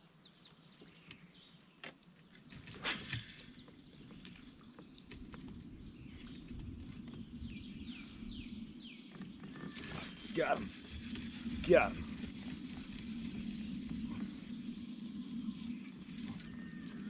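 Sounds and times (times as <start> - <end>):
high insect drone: 9.4 - 17.0
fishing reel being cranked: 9.8 - 11.3.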